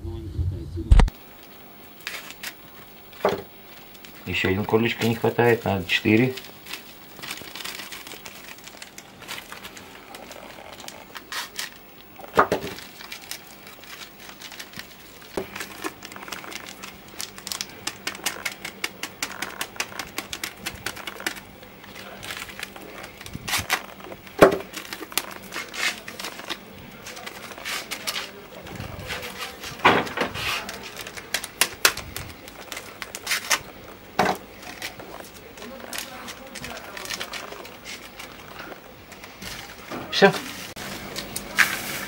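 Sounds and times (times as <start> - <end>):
paper sachets rustling: 1.2 - 42.0.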